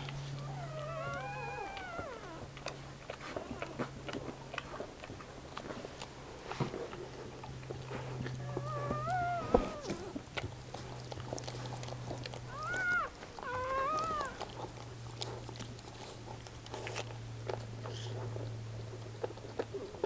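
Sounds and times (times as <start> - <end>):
steady low hum: 0.0 - 20.0
puppy squealing: 0.4 - 2.6, 8.4 - 10.2, 12.4 - 14.5.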